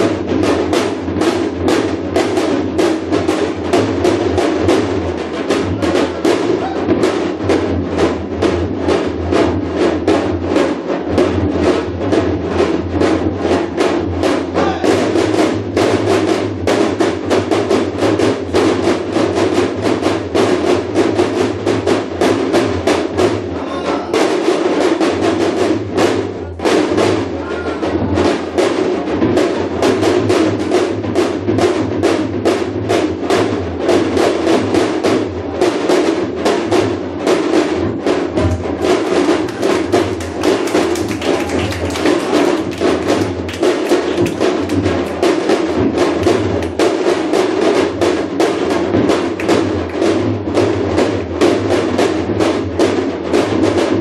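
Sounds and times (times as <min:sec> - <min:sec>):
hourglass drum fast rhythm: 0:00.0 - 0:54.0.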